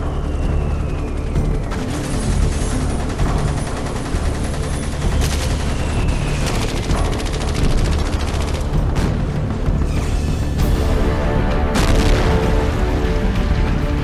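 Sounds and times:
dense rapid rattle: 0:01.5 - 0:09.0.

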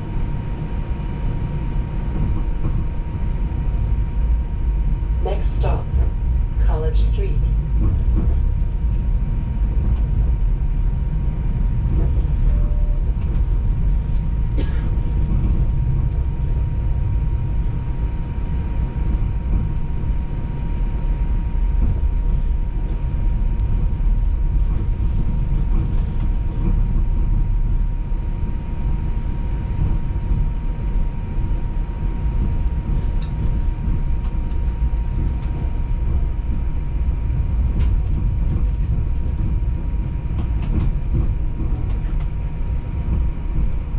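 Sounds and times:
streetcar rumbling on rails: 0:00.0 - 0:43.9.

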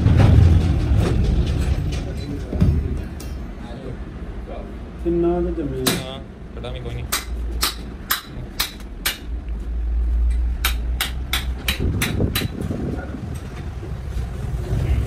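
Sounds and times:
metal knocking against metal: 0:10.6 - 0:12.7.

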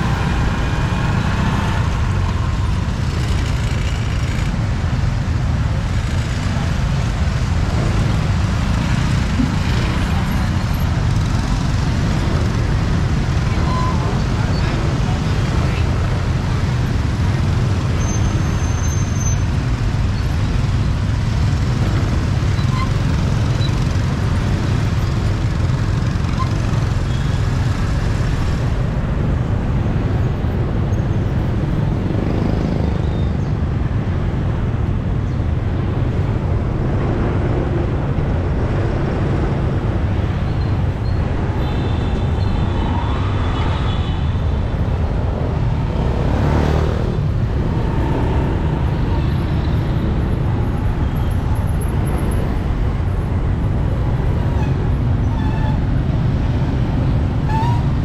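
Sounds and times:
street traffic: 0:00.0 - 0:58.0.

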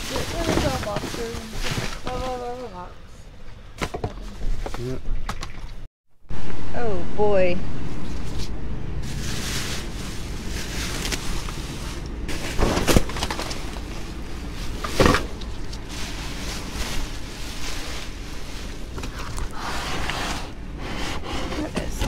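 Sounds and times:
plastic bags and cardboard rustling: 0:00.0 - 0:03.1, 0:09.0 - 0:22.0
steady low rumble: 0:06.3 - 0:22.0.

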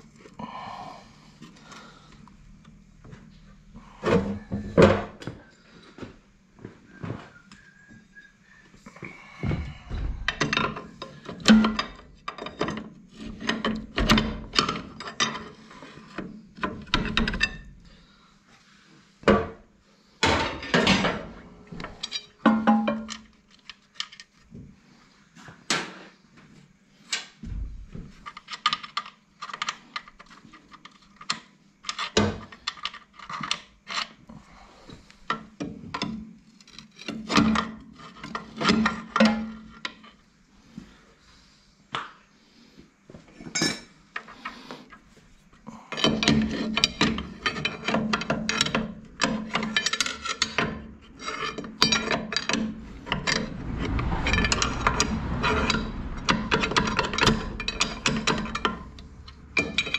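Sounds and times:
metal scraping: 0:48.6 - 0:59.9.

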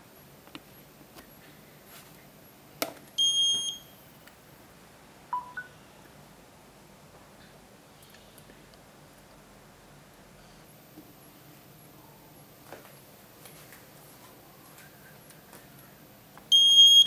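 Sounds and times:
high beep: 0:05.3 - 0:05.8.

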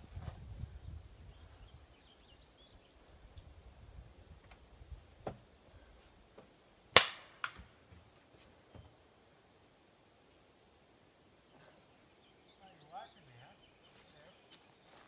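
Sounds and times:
paintball pistol shots: 0:07.0 - 0:07.7.

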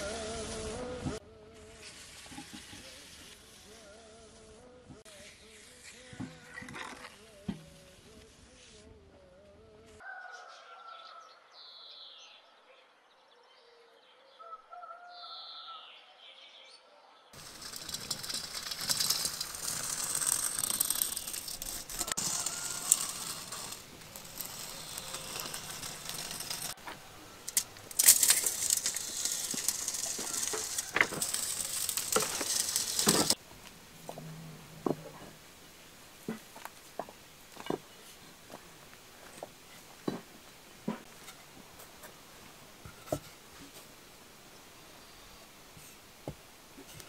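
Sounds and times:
loud even hiss: 0:00.0 - 0:06.2
bricks clacking on concrete: 0:17.4 - 0:33.4.

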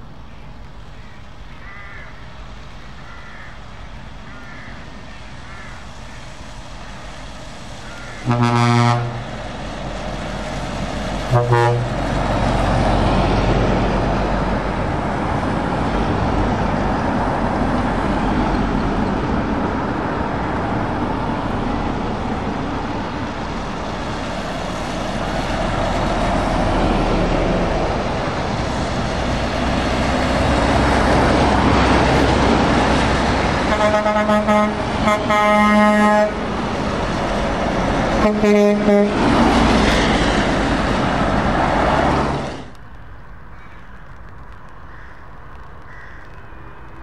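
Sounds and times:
lorries driving past on wet road: 0:00.0 - 0:47.0
truck horn blasts: 0:08.2 - 0:09.4, 0:11.3 - 0:12.0, 0:33.6 - 0:36.4, 0:38.2 - 0:39.2.

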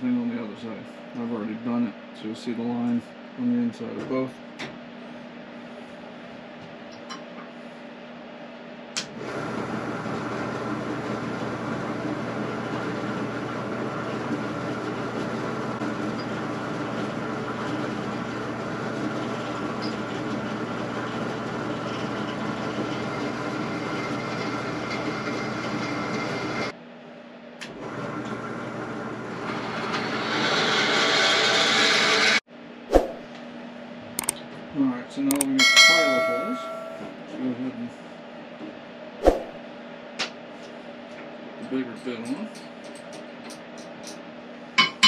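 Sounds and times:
drill press motor running: 0:09.0 - 0:26.7, 0:27.7 - 0:32.4.

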